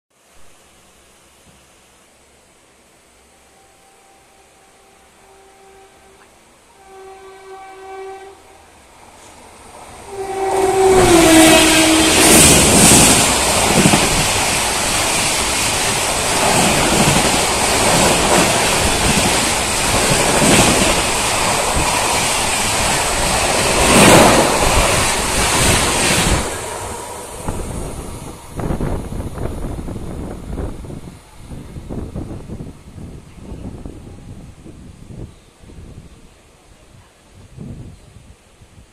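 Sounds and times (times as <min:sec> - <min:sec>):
rush of passing train coaches: 0:01.1 - 0:38.9
locomotive horn: 0:03.2 - 0:08.8, 0:10.1 - 0:12.8.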